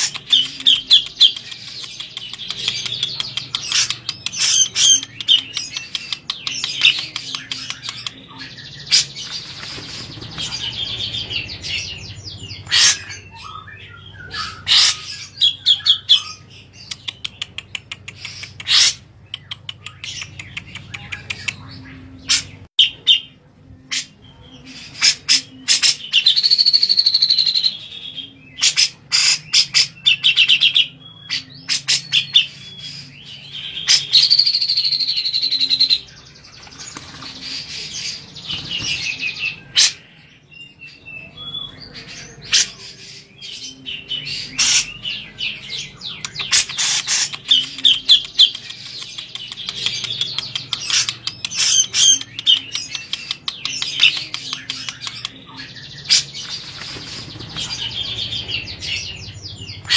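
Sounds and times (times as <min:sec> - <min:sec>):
bird harsh chattering: 0:00.0 - 0:23.2, 0:45.8 - 0:59.9
bird trilled calls: 0:00.0 - 0:23.3, 0:28.6 - 0:40.0, 0:43.9 - 0:59.9.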